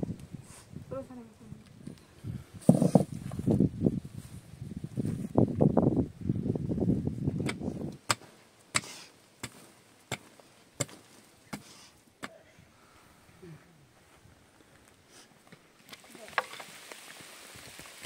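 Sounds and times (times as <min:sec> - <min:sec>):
pickaxe striking earth: 0:07.4 - 0:12.4.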